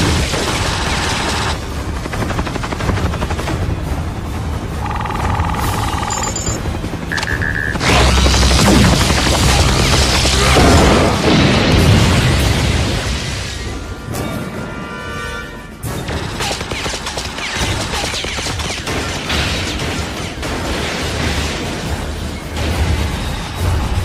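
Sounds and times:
action music: 0.0s - 18.8s
short electronic beeping: 4.8s - 7.8s
sci-fi blaster fire: 7.1s - 13.6s
battle booms and crashes: 7.8s - 14.1s.

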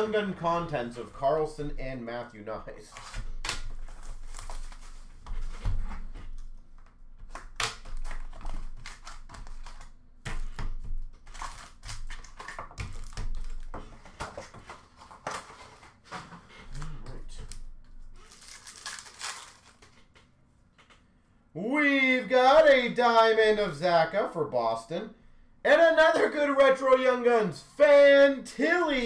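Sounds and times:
cardboard box and card packs handled: 2.9s - 6.5s, 7.2s - 20.1s.

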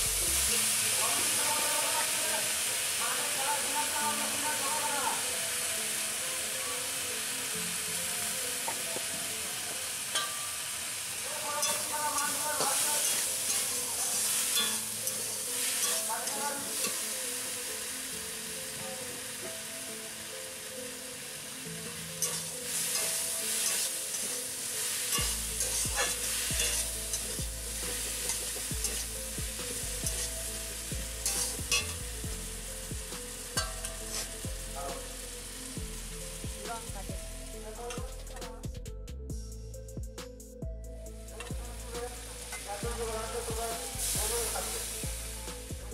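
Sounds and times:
greens sizzling in a pan: 0.0s - 38.0s, 41.2s - 45.9s
metal spatula scraping: 11.4s - 17.6s, 21.8s - 32.2s, 33.2s - 35.0s.

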